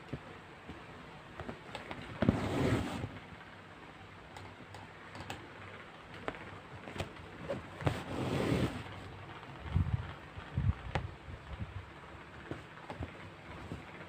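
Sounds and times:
hands handling yarn and canvas: 0:06.8 - 0:11.1.

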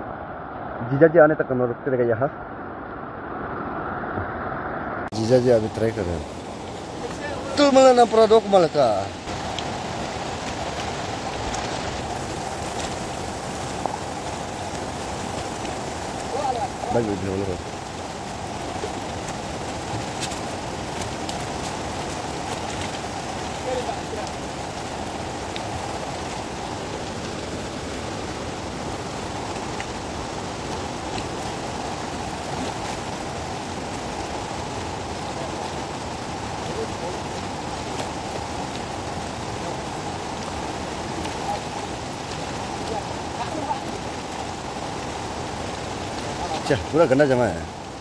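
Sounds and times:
river rushing over rocks: 0:00.0 - 0:48.0.

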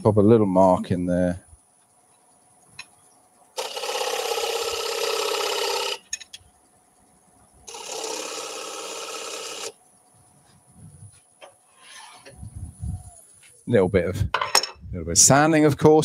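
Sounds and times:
lathe tool buzzing scrape: 0:03.6 - 0:06.0, 0:07.7 - 0:09.8.

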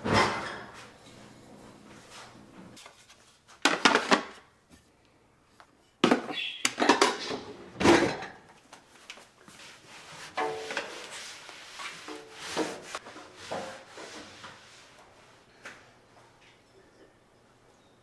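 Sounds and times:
drawer opening and shutting: 0:06.8 - 0:08.4.

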